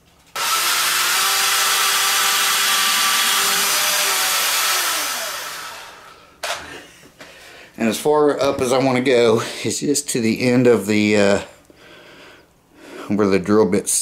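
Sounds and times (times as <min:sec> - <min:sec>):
cordless drill boring into wood: 0:00.3 - 0:06.1.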